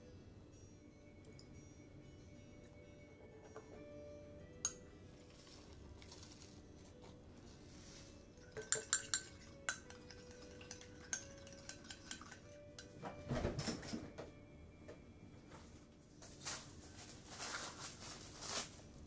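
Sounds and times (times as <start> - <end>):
spoon clinking against glass bowl: 4.6 - 4.9, 8.4 - 13.0
rustling: 16.2 - 19.0.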